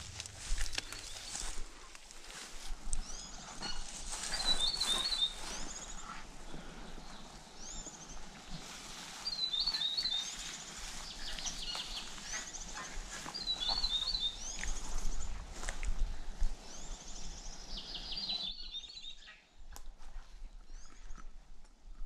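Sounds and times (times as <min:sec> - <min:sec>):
footsteps through long grass: 0:00.0 - 0:17.3
songbird chirping: 0:00.0 - 0:19.6.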